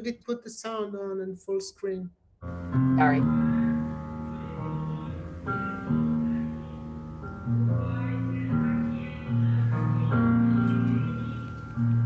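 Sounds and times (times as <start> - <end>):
slow held instrumental chords: 2.5 - 12.0.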